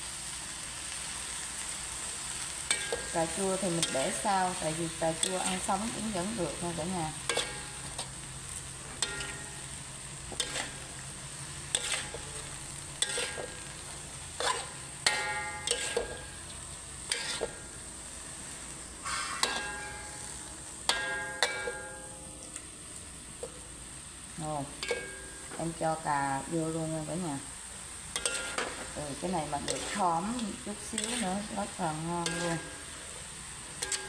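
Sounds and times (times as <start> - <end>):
food sizzling: 0.0 - 34.0
metal spatula clanking on wok: 2.7 - 8.2, 9.0 - 10.8, 11.7 - 13.8, 14.4 - 17.7, 19.0 - 22.6, 24.7 - 25.8, 28.1 - 32.9, 33.8 - 34.0.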